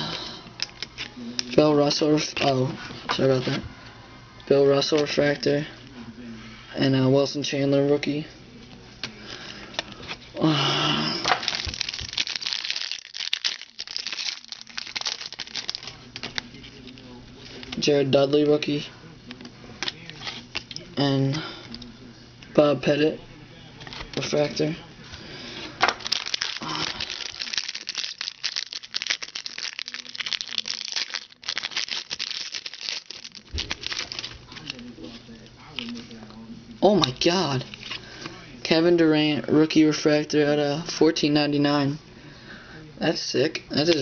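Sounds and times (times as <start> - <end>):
foil wrappers crinkling: 11.3 - 17.9, 25.5 - 36.2.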